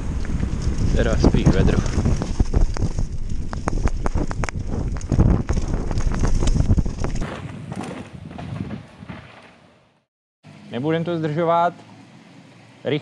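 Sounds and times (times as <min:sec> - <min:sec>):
wind noise on microphone: 0:00.0 - 0:09.4
bike rattling over ground: 0:00.0 - 0:09.6.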